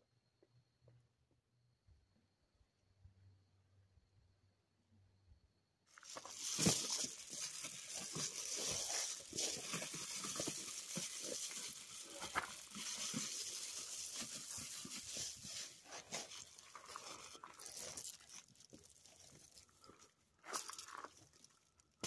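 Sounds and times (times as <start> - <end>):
foil mat crinkling: 5.9 - 20.0.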